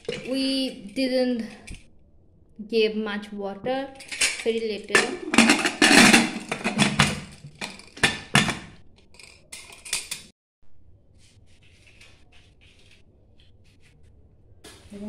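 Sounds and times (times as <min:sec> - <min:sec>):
metal lid clattering on pot: 0:04.9 - 0:08.6.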